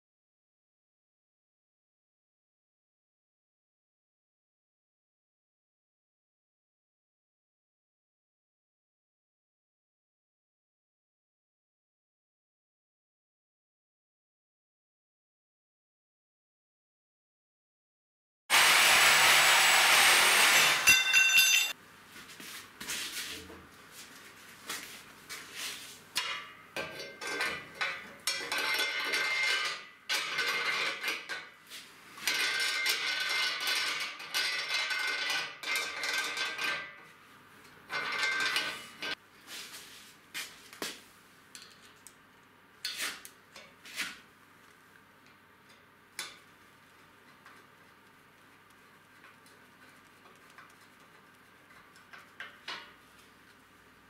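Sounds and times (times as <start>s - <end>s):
reciprocating saw cutting steel: 18.5s - 21.2s
metallic scraping and clinking: 20.6s - 21.8s, 37.9s - 39.2s.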